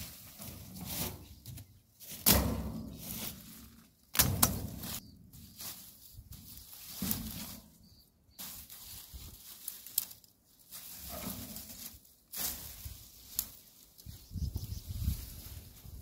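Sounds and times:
rustling stems and leaves: 0.0 - 16.0
machete chopping weeds: 2.1 - 3.4, 4.1 - 5.0.

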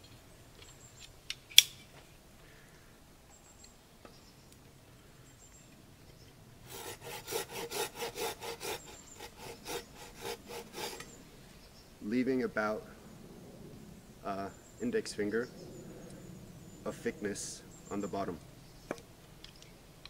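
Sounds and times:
sharp click: 1.5 - 1.8
saw cutting wooden board: 6.7 - 11.2.

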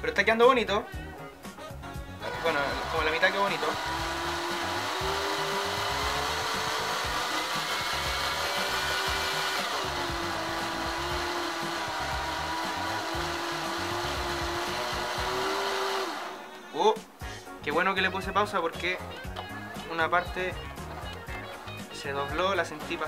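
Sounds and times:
small electric motor whining: 2.2 - 16.6.

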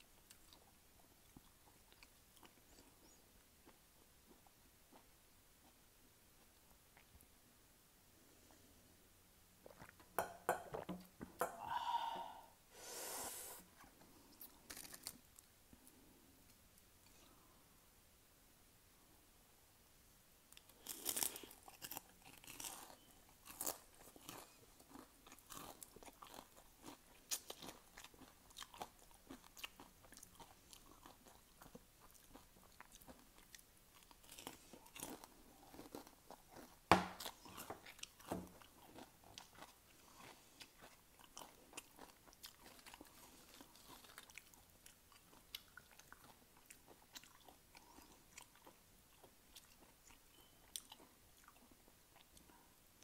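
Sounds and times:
person crunching potato chips: 14.4 - 15.5, 20.6 - 49.9.

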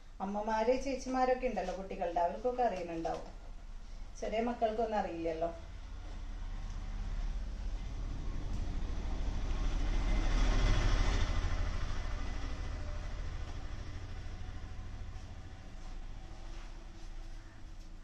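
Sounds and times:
passing vehicle rumble: 5.6 - 17.7.

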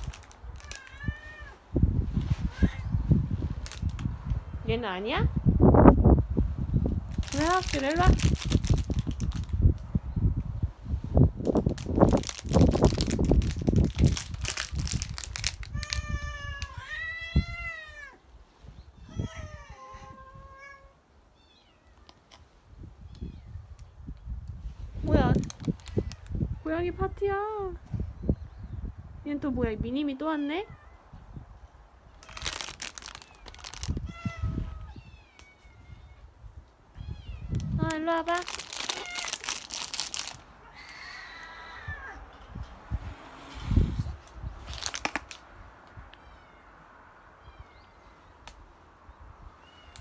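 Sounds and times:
rustling noise: 0.0 - 4.6, 5.6 - 16.8, 23.7 - 26.6, 32.2 - 36.8, 37.4 - 40.6, 42.5 - 45.5
cat meowing: 0.6 - 1.6, 2.4 - 3.0, 15.7 - 18.2, 19.0 - 22.1, 33.2 - 36.3, 36.9 - 37.8, 38.8 - 39.4, 40.6 - 42.4, 46.1 - 48.0
cats yowling: 0.6 - 1.6, 15.7 - 18.2, 19.0 - 22.1, 32.3 - 36.2, 38.8 - 39.5, 40.6 - 42.5.

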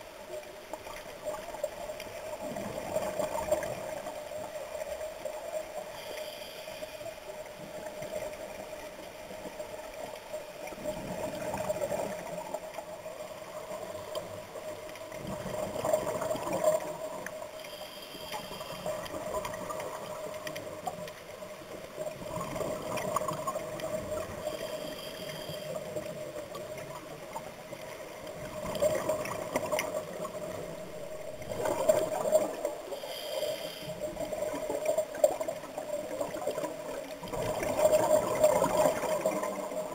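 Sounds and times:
diver breathing through regulator: 33.0 - 34.0.

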